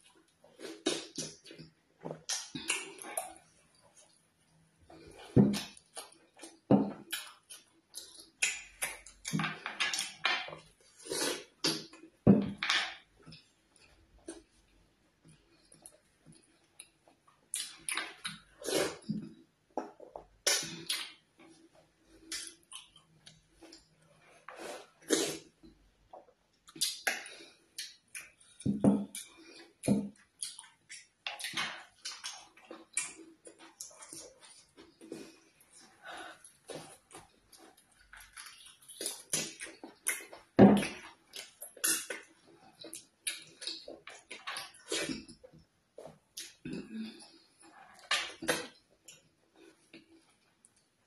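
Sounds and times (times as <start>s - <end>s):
wet smacking and chewing: 26.6s - 45.4s.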